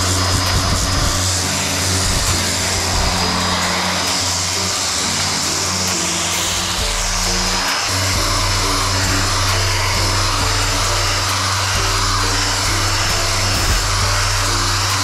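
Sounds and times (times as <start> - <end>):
background music with bass line: 0.0 - 15.0
power sander whirring: 0.0 - 15.0.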